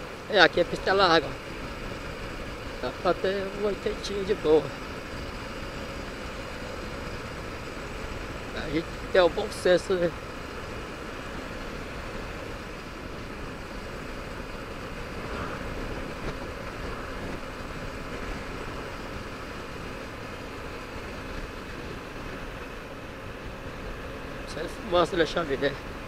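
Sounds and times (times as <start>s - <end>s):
motorcycle engine drone: 0.0s - 26.0s
wind rush on microphone: 10.4s - 24.6s.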